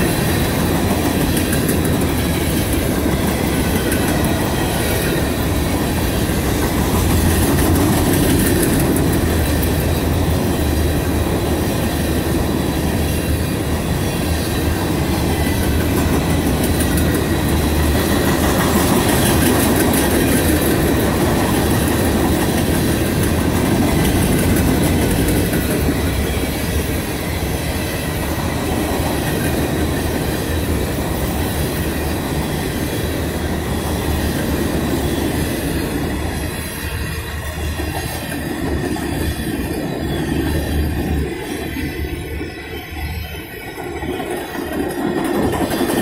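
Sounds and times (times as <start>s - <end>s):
steel wheels rumbling on rails: 0.0s - 46.0s.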